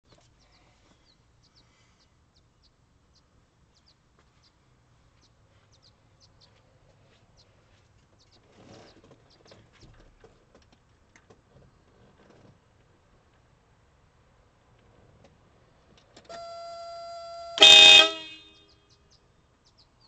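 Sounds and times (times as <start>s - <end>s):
faint birds chirping: 0.0s - 11.9s, 16.3s - 20.0s.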